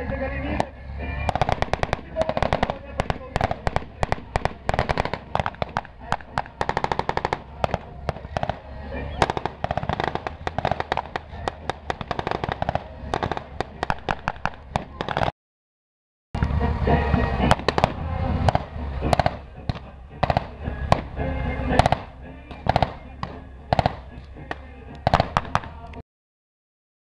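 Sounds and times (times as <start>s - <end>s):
blank gunfire shots: 0.6s - 15.3s, 17.5s - 25.9s
low steady rumble: 16.4s - 25.9s.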